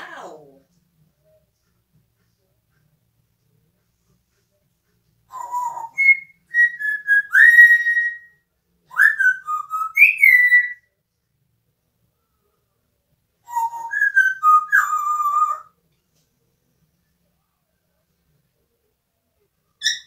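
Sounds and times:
parrot whistling a tune: 5.3 - 10.9, 13.4 - 15.7, 19.8 - 20.0.

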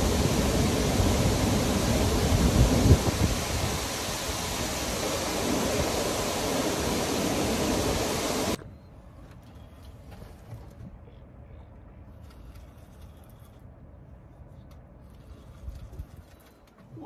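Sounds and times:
loud rushing hiss: 0.0 - 8.6.

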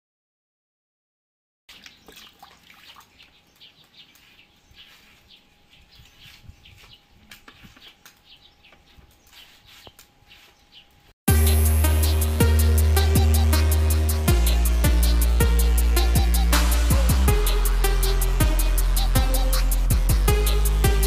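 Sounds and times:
birds chirping: 1.7 - 21.0
loud music with drum beat: 11.3 - 21.0
steady hum: 11.3 - 21.0.

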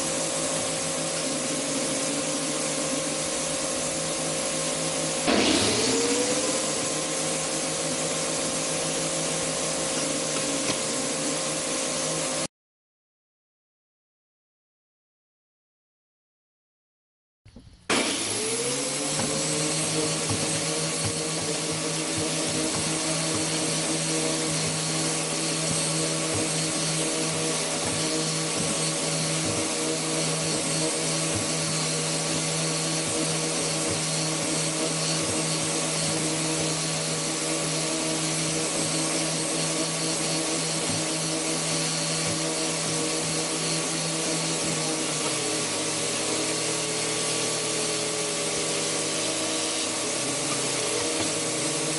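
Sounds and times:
grinder whining: 0.0 - 12.5, 17.8 - 51.9.

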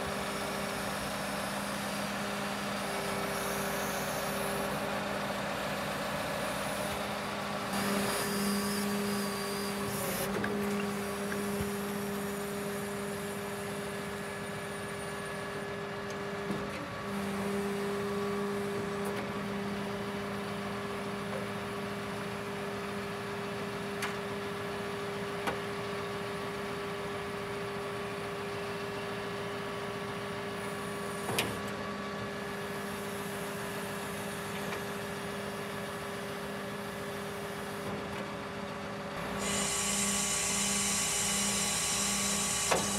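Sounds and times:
crane hydraulics humming: 0.0 - 19.0, 39.2 - 42.9.

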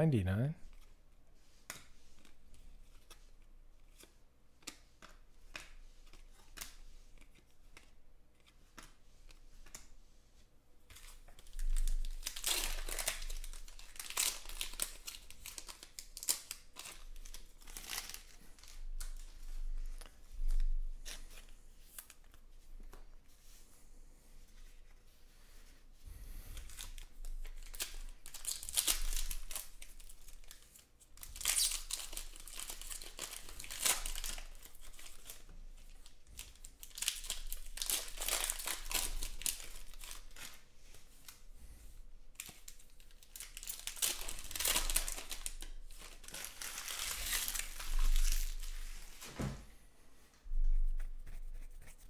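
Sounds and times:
foil wrapper tearing and crinkling: 11.4 - 19.2, 26.7 - 40.6, 42.4 - 49.1.

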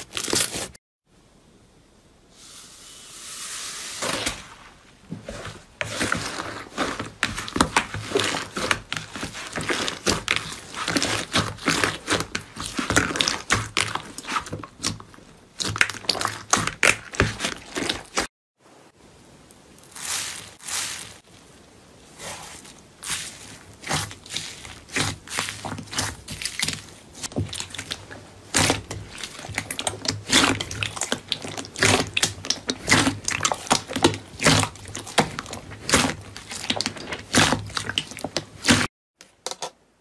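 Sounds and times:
slime crackling and popping: 6.2 - 18.3, 23.0 - 38.9.

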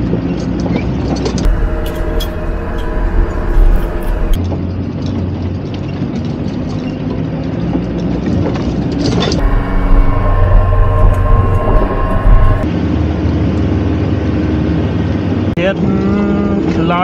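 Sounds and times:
off-road vehicle engine running: 1.4 - 8.0, 9.4 - 12.7
rough rushing noise: 1.5 - 4.4, 9.4 - 12.7.

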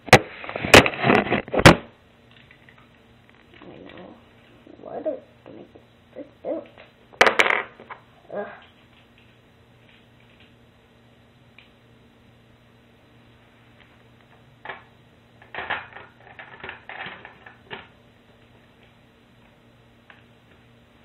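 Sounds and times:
faint steady hum: 0.0 - 21.0
plastic bricks clicking and clattering: 7.2 - 8.0, 15.4 - 17.9.

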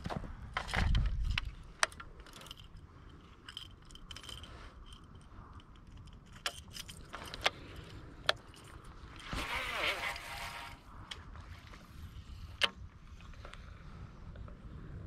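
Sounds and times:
fishing reel clicks and rattles: 1.9 - 10.8.

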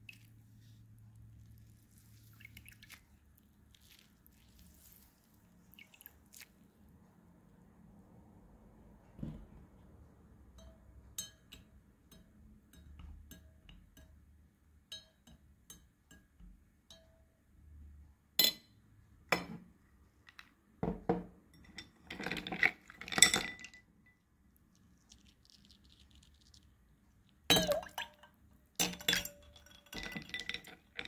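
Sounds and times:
glassware clinking: 10.6 - 14.2, 14.9 - 16.3, 18.4 - 19.6, 20.8 - 24.2, 27.5 - 31.0.

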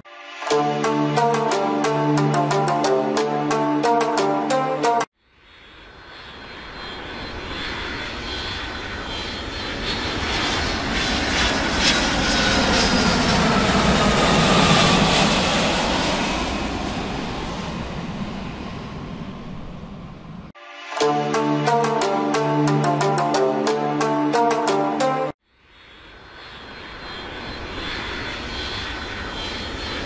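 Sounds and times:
jet engine roar: 5.5 - 23.0, 25.7 - 30.0.

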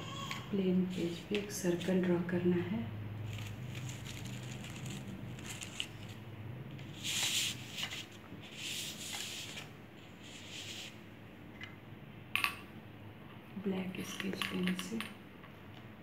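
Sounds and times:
paper rustling: 3.3 - 6.2, 6.9 - 9.7.

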